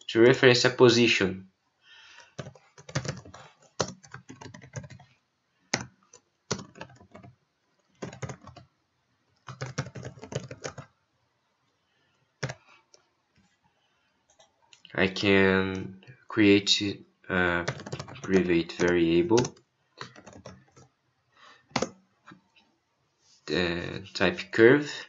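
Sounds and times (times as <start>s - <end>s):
typing on a computer keyboard: 2.2s - 5.1s, 5.7s - 8.7s, 9.4s - 10.9s, 12.4s - 12.6s, 14.3s - 14.5s, 17.6s - 20.9s, 21.7s - 22.0s.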